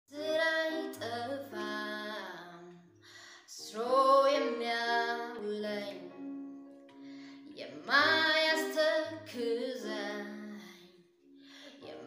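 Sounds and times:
woman singing: 0.1s - 2.8s, 3.5s - 6.3s, 7.4s - 10.9s, 11.7s - 12.0s.

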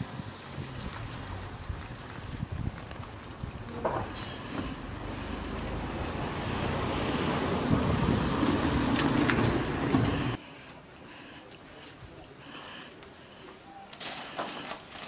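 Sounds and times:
vehicle engine rumbling: 0.0s - 10.6s.

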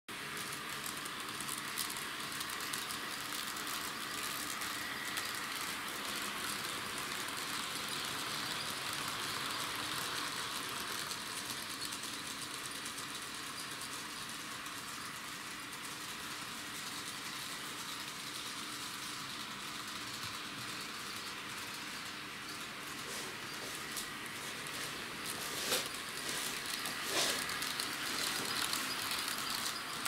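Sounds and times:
model train motor whirring: 0.1s - 30.0s
wheels clicking over rail joints: 22.5s - 30.0s.

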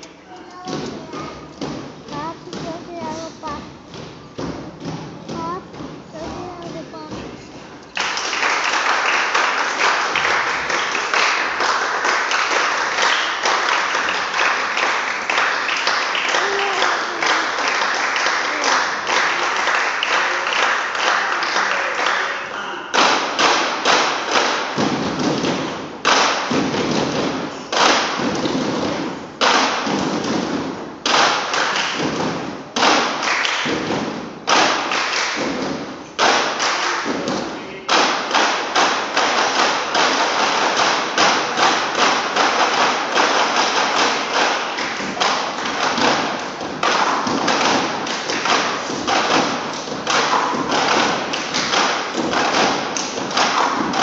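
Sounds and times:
sticks striking wooden floor: 23.0s - 54.0s.

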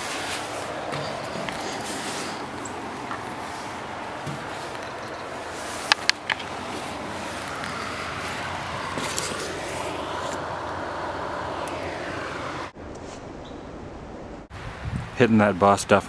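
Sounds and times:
river rushing: 0.0s - 12.8s
sharp clicks: 5.9s - 6.5s.

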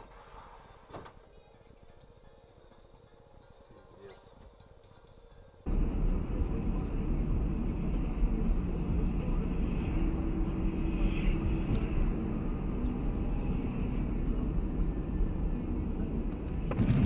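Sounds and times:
car road and engine noise: 5.6s - 17.0s.

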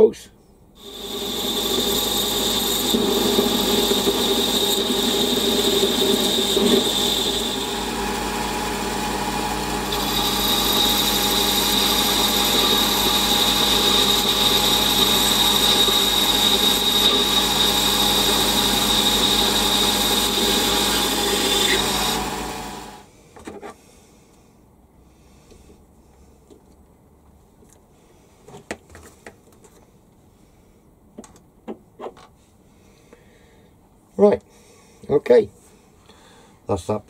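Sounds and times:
lathe high whine: 0.8s - 23.1s.

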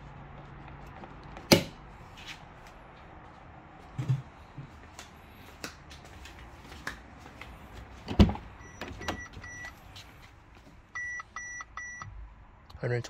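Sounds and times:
light clicks and shuffles: 2.1s - 10.9s
car electronic chime beeping: 8.6s - 9.8s, 11.0s - 12.1s.

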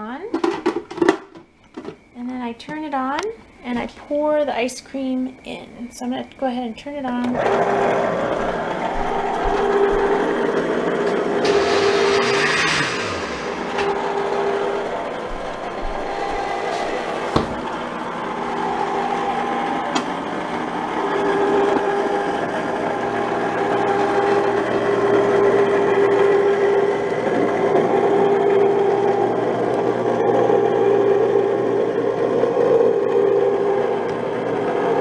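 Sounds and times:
ice cream maker motor humming: 7.4s - 35.0s.

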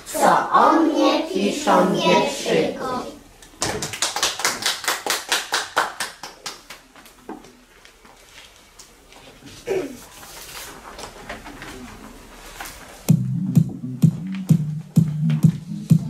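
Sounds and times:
children singing: 0.0s - 3.2s
quick hand claps: 3.5s - 7.2s.

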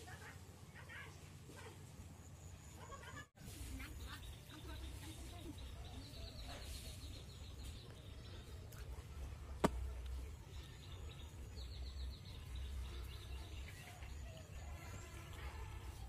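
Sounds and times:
birds chirping: 3.8s - 15.2s.

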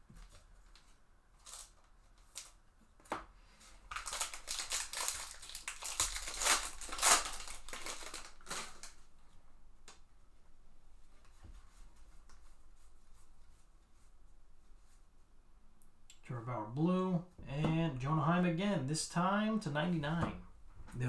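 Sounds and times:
foil wrapper crinkling: 0.8s - 2.6s, 3.9s - 9.1s.

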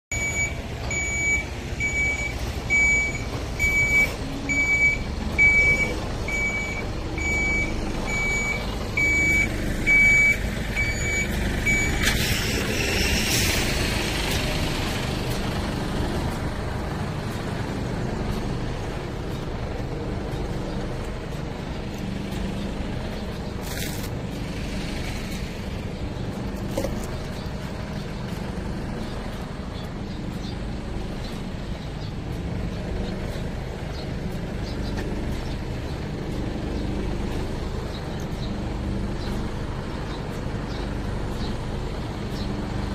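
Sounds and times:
truck reversing alarm beeping: 0.1s - 23.8s
diesel engine rumble: 0.1s - 42.9s.

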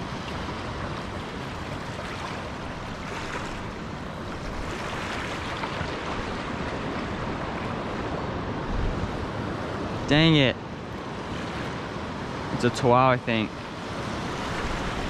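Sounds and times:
wind on microphone: 2.7s - 9.8s.

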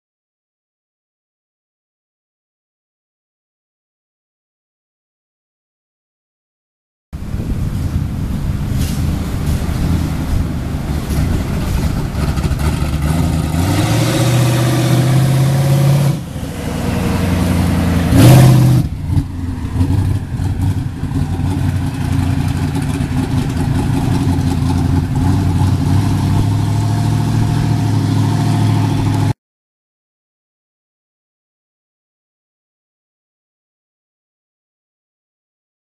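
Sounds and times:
pickup truck engine accelerating: 7.2s - 29.4s.

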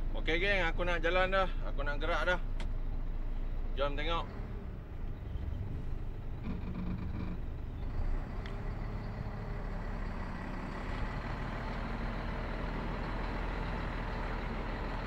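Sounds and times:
diesel engine running: 4.3s - 15.0s.

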